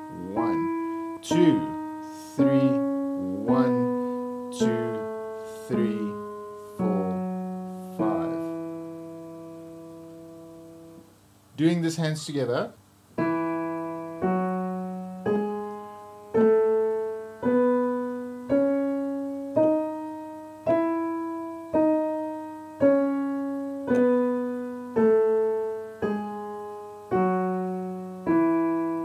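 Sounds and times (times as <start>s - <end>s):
piano playing a scale: 0.0s - 29.0s.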